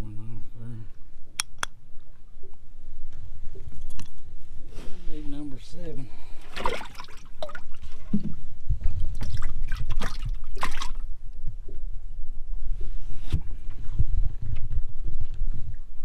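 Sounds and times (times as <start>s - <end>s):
water splashing and trickling: 6.2s - 11.7s.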